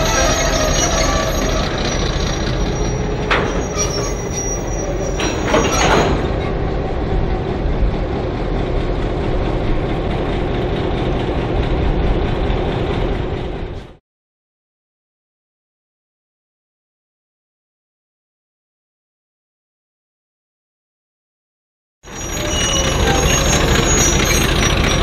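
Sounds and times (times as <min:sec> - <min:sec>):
wheels squealing on rails: 0:00.0 - 0:07.6, 0:22.0 - 0:25.0
diesel locomotive engine rumble: 0:00.0 - 0:14.0, 0:22.0 - 0:25.0
metal clanks: 0:02.4 - 0:06.6.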